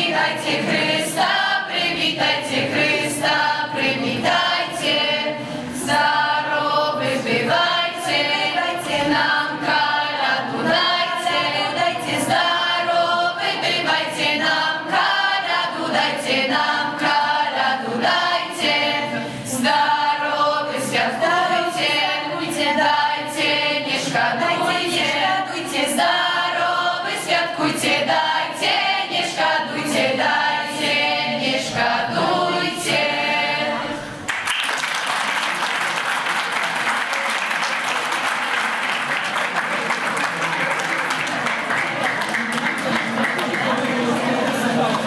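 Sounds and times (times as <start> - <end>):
choir singing unaccompanied: 0.0 - 34.2, 41.5 - 45.0
applause: 34.2 - 45.0.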